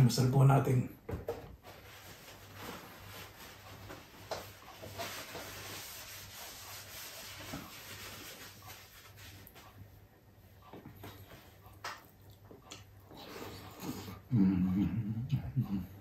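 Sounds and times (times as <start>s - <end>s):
chewing and rice rustling: 7.2s - 14.3s.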